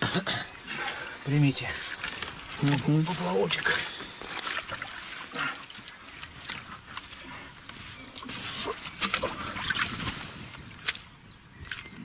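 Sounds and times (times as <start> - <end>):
muddy water sloshing: 0.4 - 12.0
scrapes and splashes: 0.5 - 12.0
wet mud squelching: 0.5 - 12.0.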